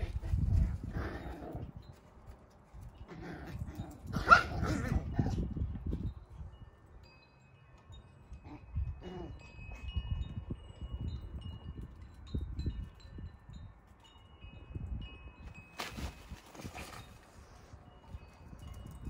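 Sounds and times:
chimes ringing: 6.1s - 19.0s.

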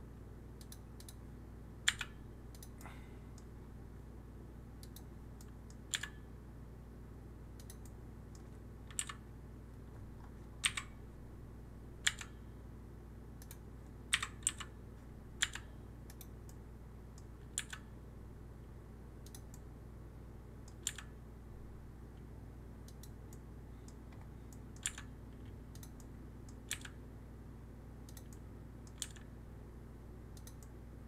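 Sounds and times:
steady low hum: 0.0s - 31.0s
keyboard keys clicking: 8.9s - 9.2s, 10.2s - 10.9s, 17.4s - 17.9s, 20.7s - 21.1s, 24.2s - 25.1s, 25.7s - 27.0s, 28.1s - 29.3s.

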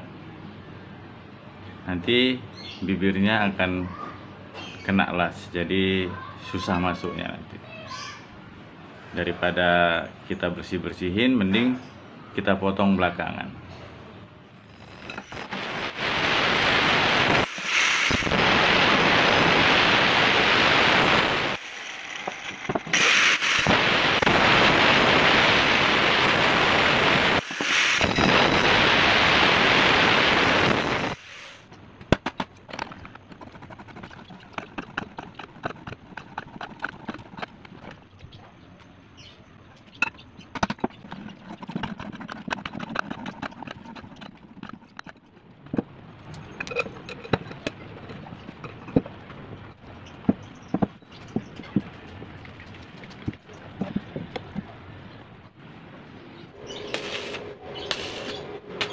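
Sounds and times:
angle grinder cutting steel: 20.3s - 24.3s, 56.8s - 58.9s
metal clicks and scrapes: 32.2s - 38.0s, 40.0s - 49.1s.

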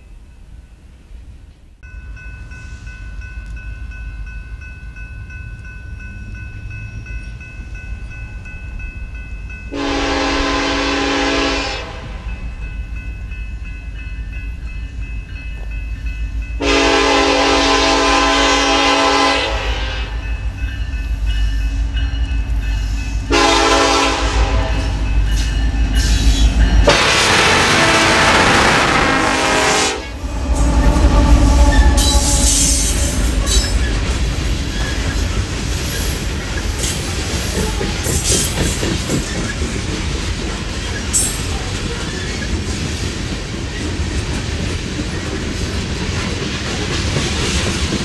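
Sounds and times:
locomotive horn blasts: 9.7s - 12.2s, 16.6s - 20.2s, 23.3s - 25.0s, 26.8s - 34.0s.

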